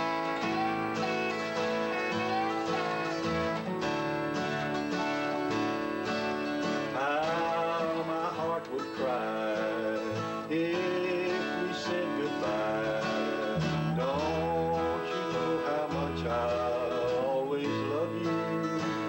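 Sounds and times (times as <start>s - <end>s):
slide guitar lead: 0.0s - 19.0s
strummed acoustic guitar: 0.0s - 19.0s
electric bass: 13.5s - 15.1s.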